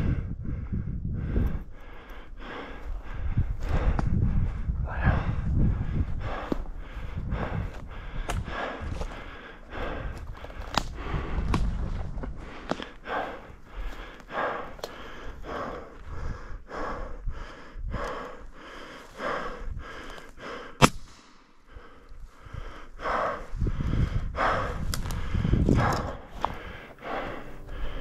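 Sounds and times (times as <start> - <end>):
low rumble: 0.0 - 17.2, 23.1 - 28.0
person breathing hard: 0.0 - 28.0.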